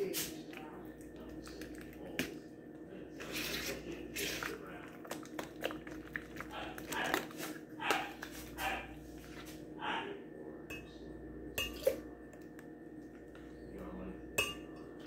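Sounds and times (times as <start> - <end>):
cup and dishes clattering: 11.6 - 12.0.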